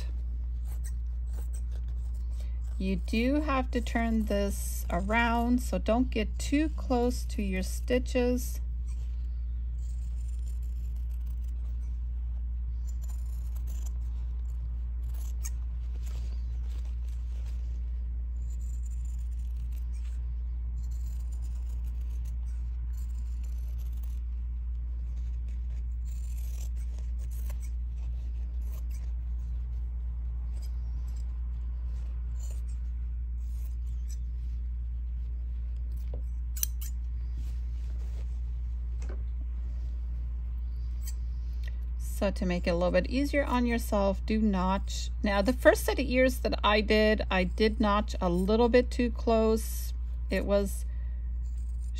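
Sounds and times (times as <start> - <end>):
scissors snipping fabric: 0.0 - 9.0, 9.7 - 12.0, 12.7 - 17.3, 18.4 - 29.8, 30.4 - 34.4, 35.7 - 37.1
low hum: 0.0 - 51.9.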